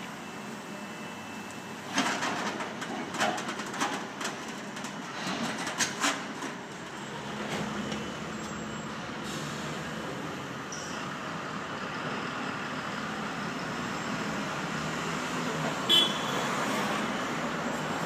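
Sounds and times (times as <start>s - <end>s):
bus driving by: 4.6s - 18.0s
cars driving by: 7.0s - 18.0s.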